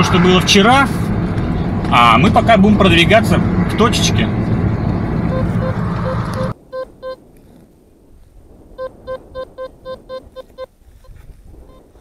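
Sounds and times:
car road noise: 0.0 - 7.2
metal detector beeps: 5.3 - 7.2, 8.8 - 10.7.

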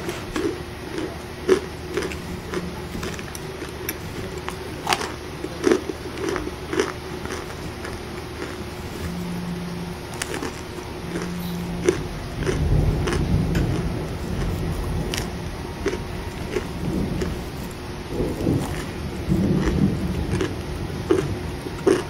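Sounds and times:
crisp crunching bites: 0.0 - 9.1, 10.1 - 22.0
heavy rain hiss: 8.6 - 21.8.

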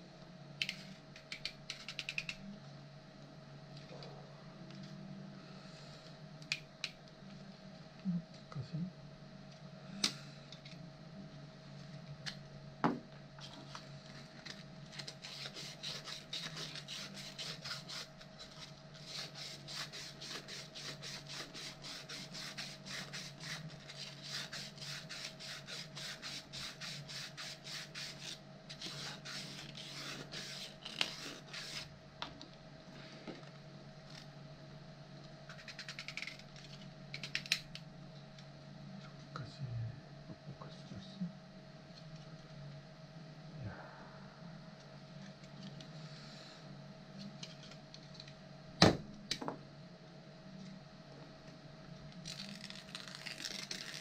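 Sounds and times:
sanding plastic by hand: 15.0 - 31.9.

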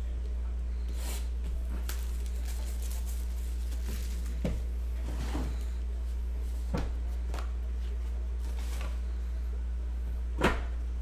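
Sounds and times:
steady low hum: 0.0 - 11.0
cardboard rustling: 1.0 - 9.2.

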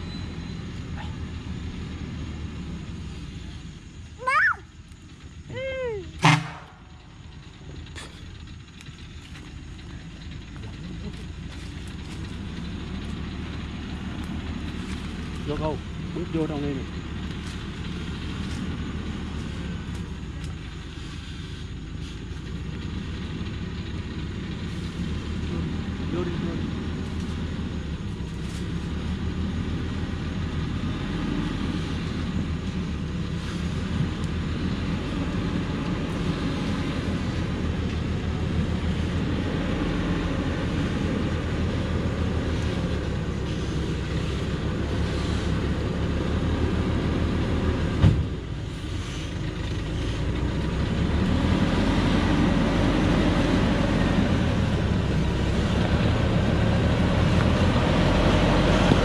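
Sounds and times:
truck diesel engine running: 0.0 - 59.0.

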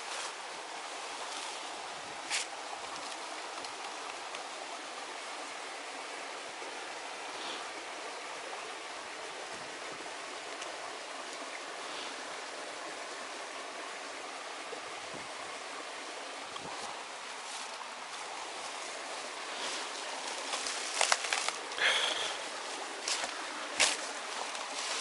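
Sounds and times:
stream water flowing: 0.0 - 25.0.

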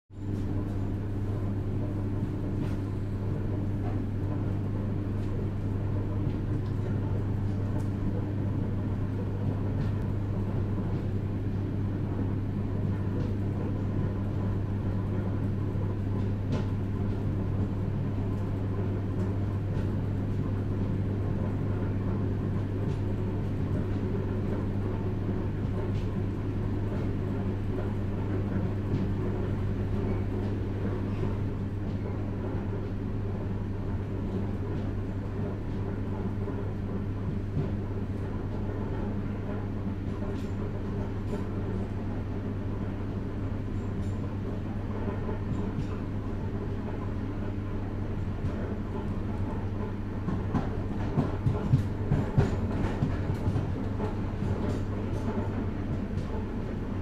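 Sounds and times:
train wheels rumbling on rails: 48.2 - 57.0.

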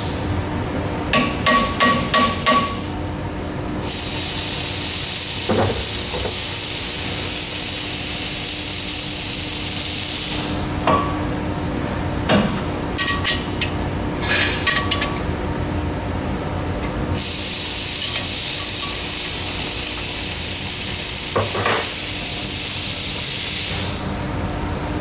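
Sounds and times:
steady hum: 0.0 - 25.0
loud even hiss: 17.2 - 24.1.

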